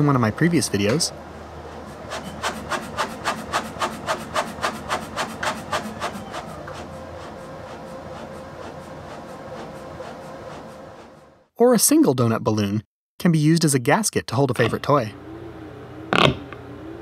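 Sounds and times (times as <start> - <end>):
pump rhythmic rasping: 1.6 - 11.4.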